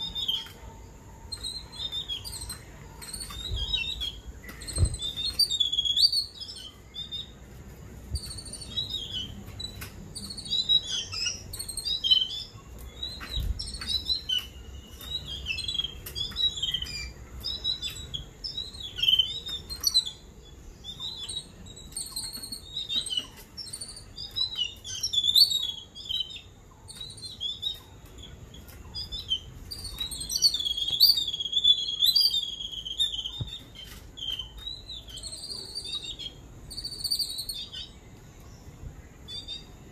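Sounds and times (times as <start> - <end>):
birds chirping and chattering: 0.0 - 39.9.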